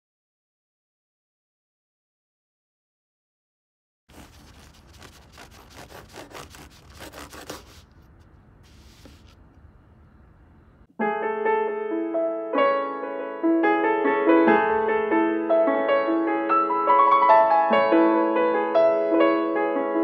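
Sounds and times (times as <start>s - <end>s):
knife sawing through bread: 4.1s - 9.2s
bread roll rustling: 4.1s - 9.7s
piano music: 10.9s - 20.0s.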